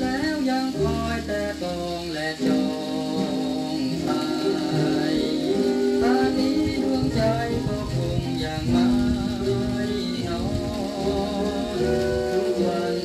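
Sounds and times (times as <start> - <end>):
old band song on a record: 0.0 - 13.0.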